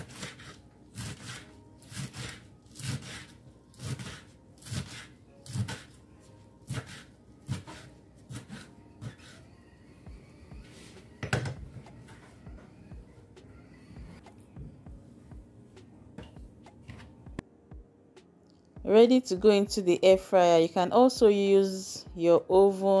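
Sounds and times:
knife chopping lettuce: 0.0 - 6.0, 6.6 - 9.4.

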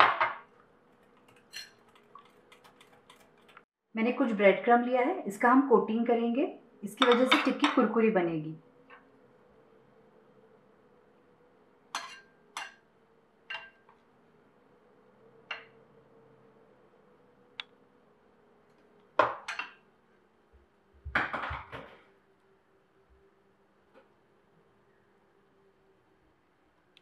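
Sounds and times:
utensils and crockery clattering: 1.2 - 3.6, 12.0 - 12.8
metal utensil clinking on ceramic bowl: 12.0 - 12.8.

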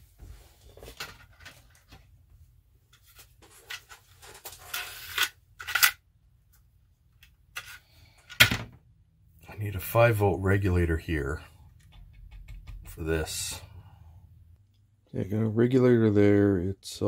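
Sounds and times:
rustling and scraping: 0.0 - 2.2, 2.9 - 5.9.

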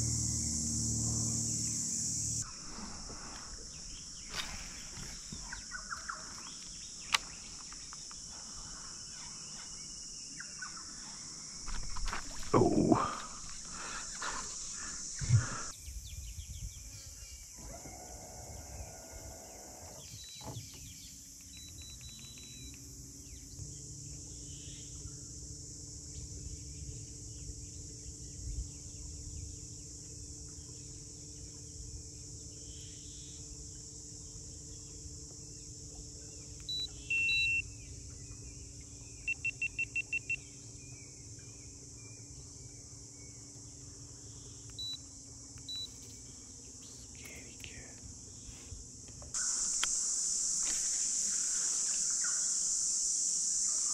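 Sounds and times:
low steady hum: 0.0 - 17.4, 18.5 - 53.8
high-pitched insect drone: 0.0 - 53.9
electronic device beeps: 21.5 - 22.7, 36.7 - 37.6, 39.3 - 40.4.

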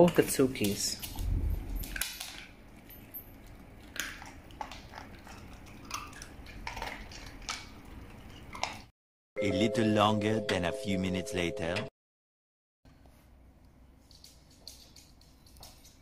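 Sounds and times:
dogs crunching kibble: 0.5 - 8.9.

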